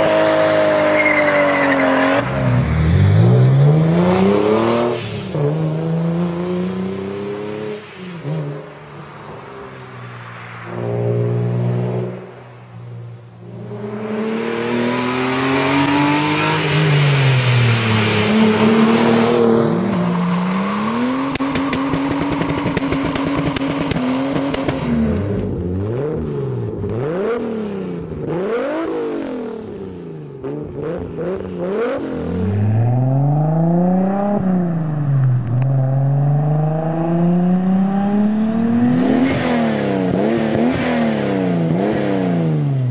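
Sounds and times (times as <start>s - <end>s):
engine revving in long sweeps: 0.0s - 42.9s
car passing by: 6.3s - 21.4s, 32.2s - 36.6s.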